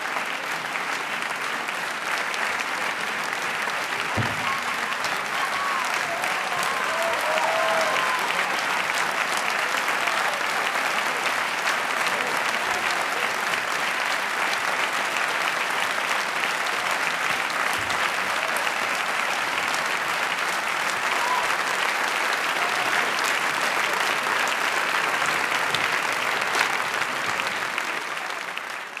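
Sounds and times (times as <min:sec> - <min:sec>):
audience applauding: 0:00.0 - 0:29.0.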